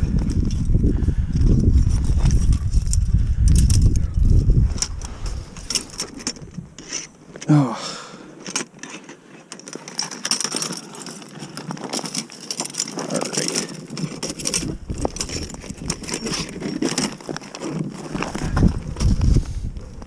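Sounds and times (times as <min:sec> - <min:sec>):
metal trap clinking and rattling: 0:02.0 - 0:07.1, 0:08.4 - 0:17.8.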